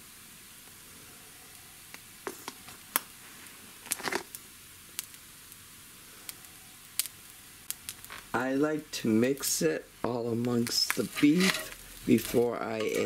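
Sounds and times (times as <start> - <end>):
meat and mushrooms sizzling in pan: 0.0 - 13.0.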